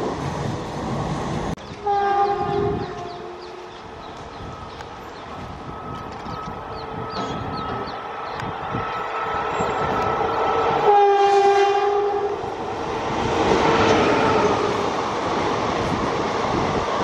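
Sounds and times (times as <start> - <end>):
train horn blast: 1.8 - 3.8, 7.0 - 12.5.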